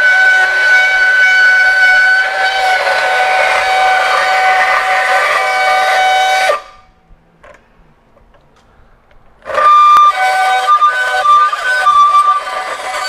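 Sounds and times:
band saw squealing on steel: 0:00.0 - 0:06.9, 0:09.4 - 0:13.0.

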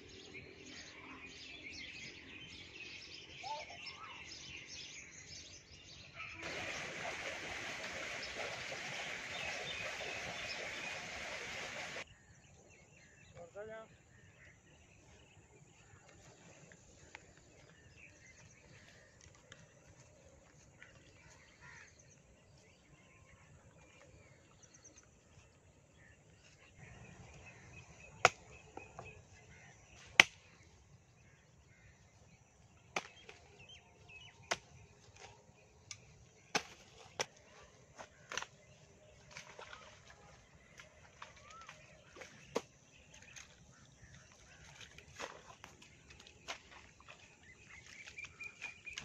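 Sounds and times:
birds chirping faintly: 0:00.0 - 0:49.0.

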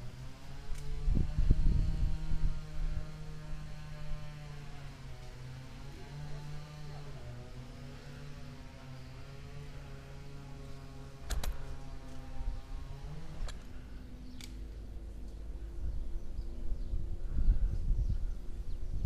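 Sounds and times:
low mechanical hum: 0:00.0 - 0:19.0
sharp clicks: 0:11.2 - 0:11.6, 0:14.3 - 0:14.6.

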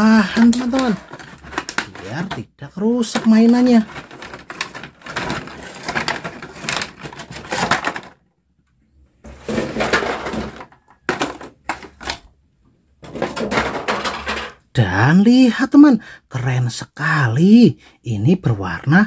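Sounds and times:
plastic packaging crinkling: 0:00.0 - 0:02.4, 0:03.0 - 0:08.2.

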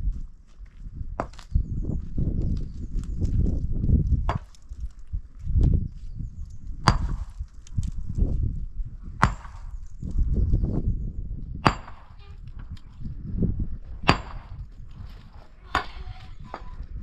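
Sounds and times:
low rumbling and knocking: 0:11.4 - 0:17.0.

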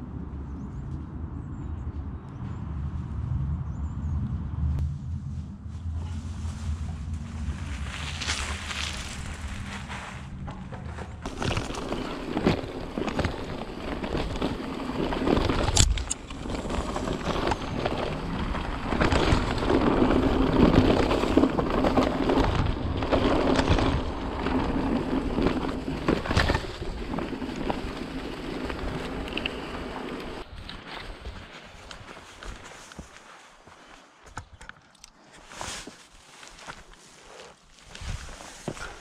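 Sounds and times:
bike tyres rolling over leaves and dirt: 0:04.8 - 0:34.3, 0:35.3 - 0:39.0
bike rattling and knocking: 0:08.0 - 0:30.4.

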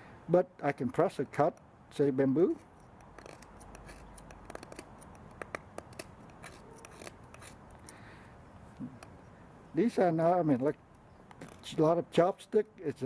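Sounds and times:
knife shaving bamboo: 0:02.5 - 0:07.8.

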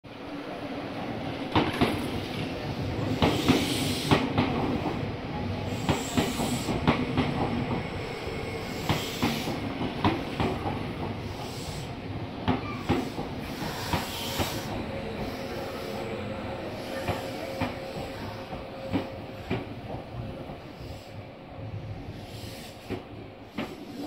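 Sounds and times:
train running rumble: 0:01.5 - 0:24.0
train brake hiss: 0:03.2 - 0:04.2, 0:05.7 - 0:06.9, 0:08.1 - 0:10.0, 0:11.1 - 0:12.0, 0:12.6 - 0:18.4, 0:20.6 - 0:24.0
train wheels clacking over rail joints: 0:08.7 - 0:15.4, 0:22.8 - 0:24.0.

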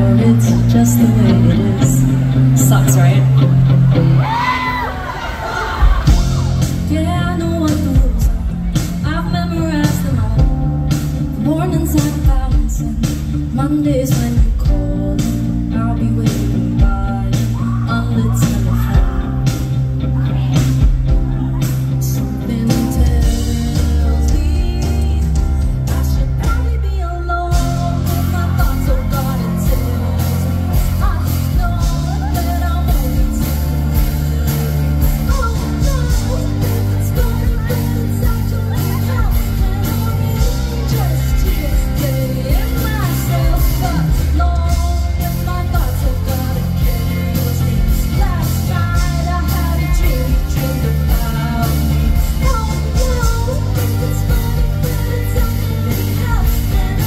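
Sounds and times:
woman singing into microphone: 0:00.0 - 0:03.3, 0:05.8 - 0:57.0
electric guitar: 0:00.0 - 0:57.0
steady drum beat: 0:05.8 - 0:13.6, 0:27.5 - 0:57.0.

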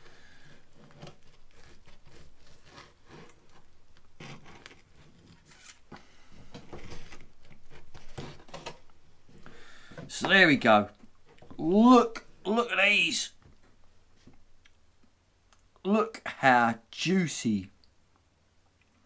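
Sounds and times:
bread knife sawing through ribs: 0:00.1 - 0:03.6.

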